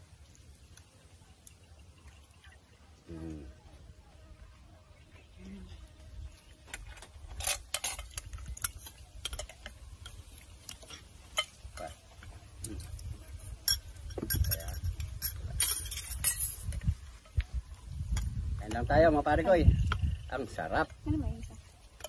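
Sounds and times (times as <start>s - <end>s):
spoons clinking on glass bowls: 7.7s - 12.0s, 13.6s - 16.8s.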